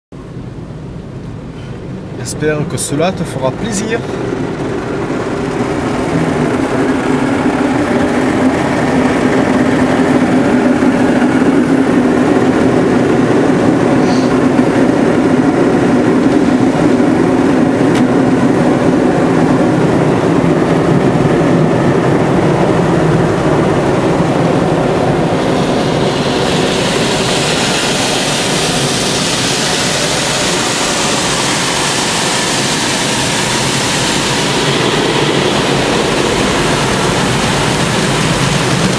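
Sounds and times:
car wash brushes and water: 23.0s - 38.9s
hissing spray: 24.4s - 38.9s.

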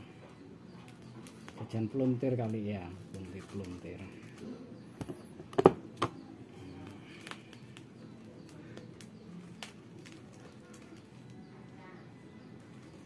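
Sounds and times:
plastic wrapping crinkling: 0.9s - 4.5s, 8.4s - 11.4s.

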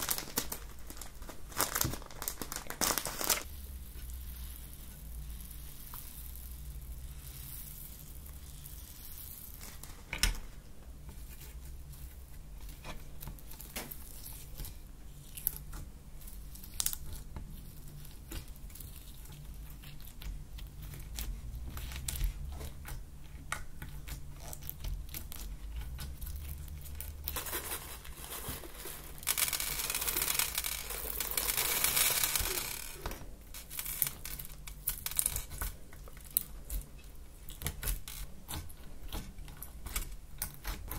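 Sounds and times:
plastic bags crinkling: 0.0s - 3.5s, 24.4s - 36.7s
beads clicking on hard tabletop: 29.2s - 35.7s.

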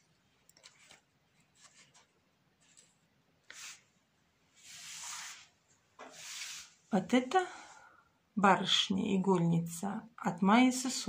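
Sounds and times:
doll rustling on a table: 0.6s - 6.9s.

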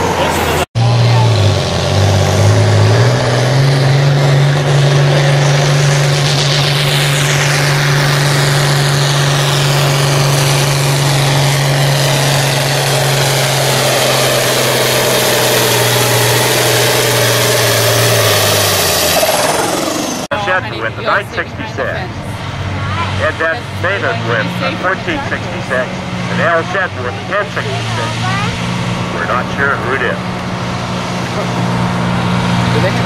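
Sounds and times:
tractor diesel engine under load: 0.0s - 33.0s
high whine sliding down: 2.2s - 20.3s.

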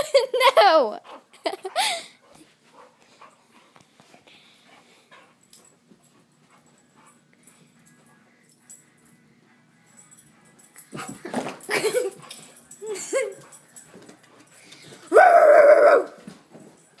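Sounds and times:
person screaming: 15.1s - 16.1s.

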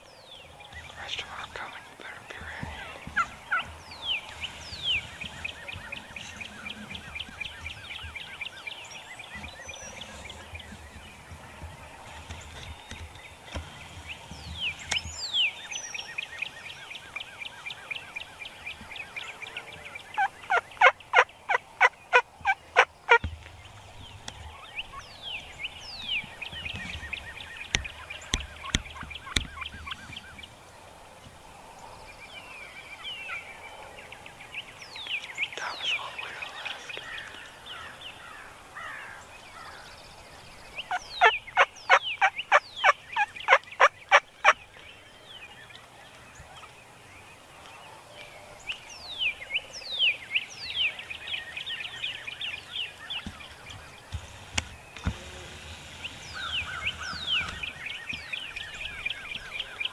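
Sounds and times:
light wind: 0.0s - 59.9s
turkeys calling: 0.8s - 8.5s, 16.2s - 30.5s, 40.6s - 44.9s, 52.4s - 59.9s.

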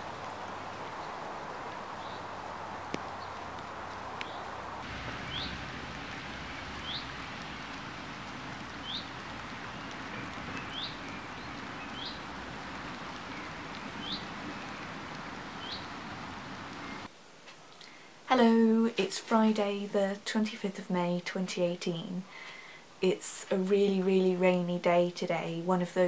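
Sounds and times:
rain falling: 0.0s - 17.1s
bird chirping: 4.2s - 17.1s.

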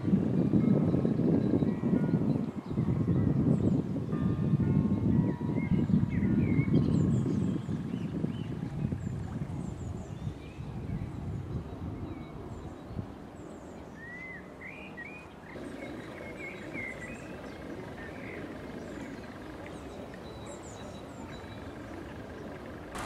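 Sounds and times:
small birds chirping: 5.6s - 23.0s
low outdoor rumble: 15.5s - 23.0s.

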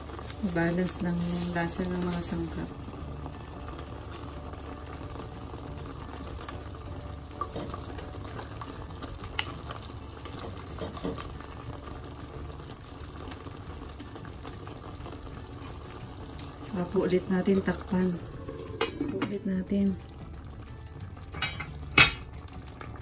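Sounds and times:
food simmering in a pan: 0.0s - 23.0s.

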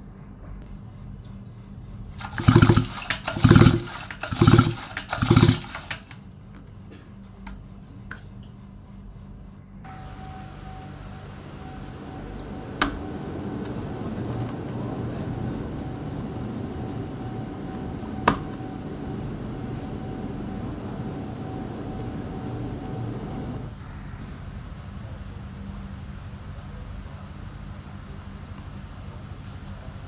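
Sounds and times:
low motor rumble: 0.0s - 30.0s
thin steady whine: 8.4s - 30.0s.

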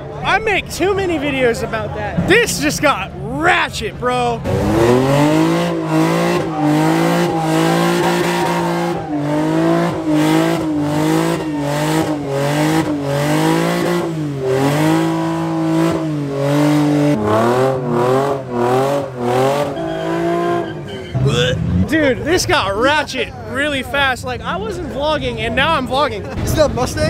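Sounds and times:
car engine revving high: 3.3s - 22.3s
tyres squealing: 19.5s - 21.8s.

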